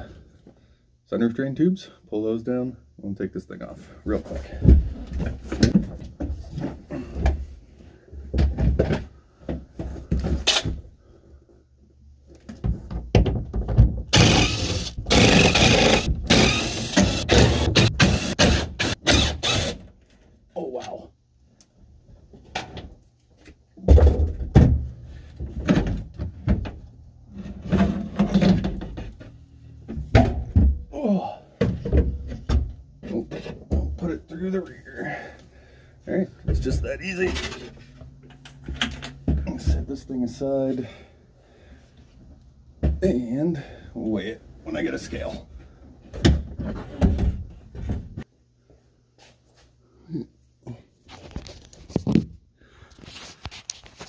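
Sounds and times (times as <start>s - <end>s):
knocks and scraping: 4.1s - 10.9s, 12.4s - 20.2s, 22.1s - 31.0s, 31.6s - 34.7s, 36.4s - 40.5s, 45.1s - 48.3s
metal and plastic clunks and rattles: 4.4s - 7.5s, 8.2s - 10.9s, 12.4s - 14.4s, 22.4s - 30.9s, 31.6s - 34.1s, 36.4s - 40.0s, 46.0s - 48.3s
metal frame clunking and scraping: 23.8s - 30.9s
person grunting: 30.9s - 31.6s, 50.0s - 50.8s.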